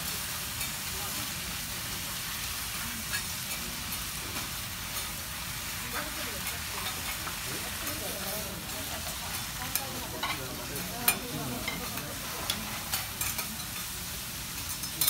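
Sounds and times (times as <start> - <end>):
food sizzling on a griddle: 0.0 - 15.0
metal spatulas clicking on griddle: 9.3 - 13.9, 14.6 - 15.0.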